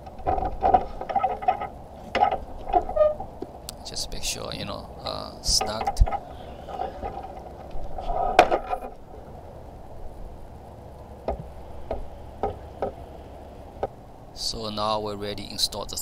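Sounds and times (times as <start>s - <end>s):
plastic scraping rustle: 0.0s - 3.4s, 5.4s - 9.0s.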